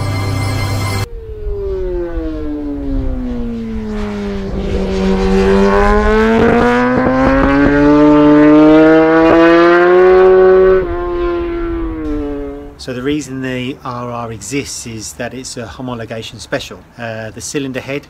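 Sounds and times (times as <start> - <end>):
motorcycle engine at high revs: 1.8 - 12.8.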